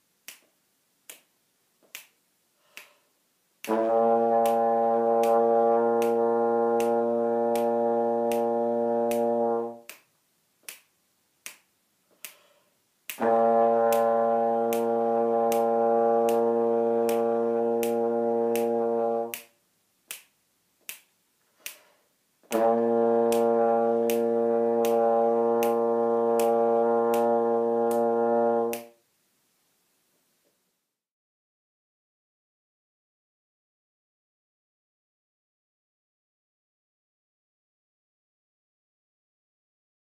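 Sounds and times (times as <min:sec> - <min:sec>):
trombone long low notes: 0:03.7 - 0:09.9, 0:13.2 - 0:19.4, 0:22.5 - 0:28.9
metronome clicking: 0:06.8 - 0:08.5, 0:14.7 - 0:16.5, 0:17.1 - 0:19.5, 0:22.5 - 0:28.1, 0:28.7 - 0:28.9.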